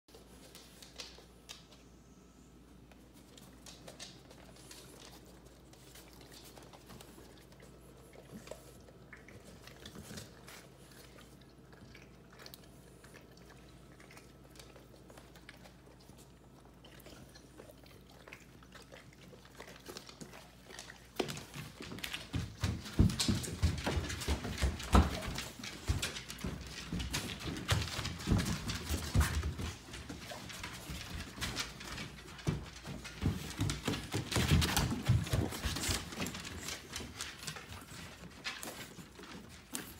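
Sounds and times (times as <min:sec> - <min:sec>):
running steps on hard floor: 0:21.2 - 0:39.9.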